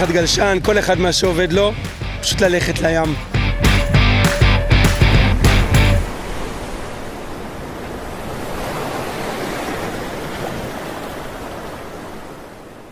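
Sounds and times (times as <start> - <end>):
music: 0.0 - 6.1
waves washing: 0.0 - 12.9.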